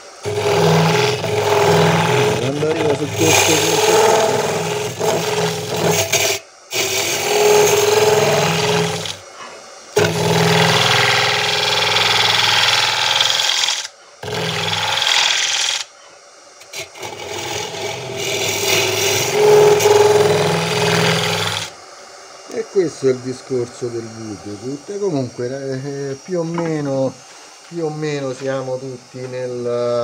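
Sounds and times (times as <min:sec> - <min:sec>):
hollowing tool rasping wood: 0:00.0 - 0:09.3, 0:10.0 - 0:15.9, 0:16.6 - 0:21.8
wood lathe humming: 0:00.0 - 0:15.9, 0:16.6 - 0:29.7.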